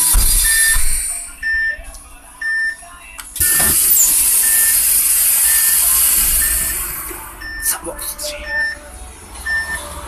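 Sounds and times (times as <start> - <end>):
pneumatic door thump: 0.0 - 1.3, 3.4 - 7.0
door warning beeper: 0.0 - 2.8, 3.4 - 7.8.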